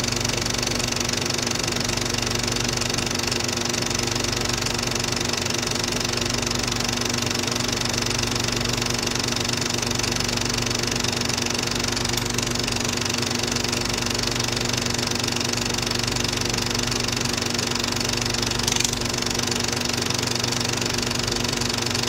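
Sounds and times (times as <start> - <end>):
film projector mechanism whirring: 0.0 - 22.0
constant hum: 18.0 - 21.8.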